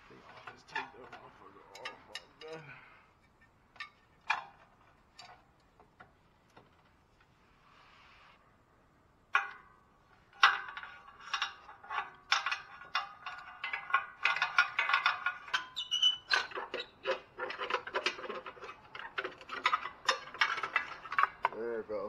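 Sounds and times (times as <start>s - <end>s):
sheet metal clanking and rattling: 10.3s - 21.6s.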